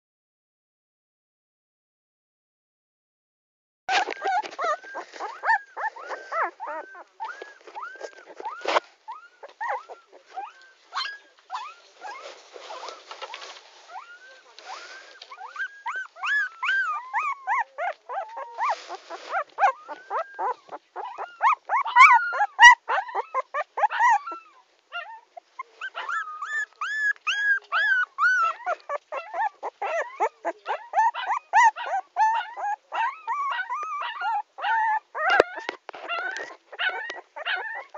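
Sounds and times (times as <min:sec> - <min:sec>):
puppy whimpering and crying: 0:03.9 - 0:13.0, 0:13.9 - 0:37.9
rustling: 0:03.9 - 0:24.3, 0:25.4 - 0:34.1.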